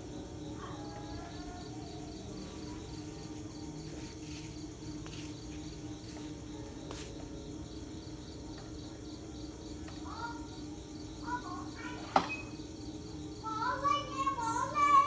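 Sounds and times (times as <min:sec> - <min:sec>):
crickets chirping: 0:00.0 - 0:15.0
steady low hum: 0:00.0 - 0:15.0.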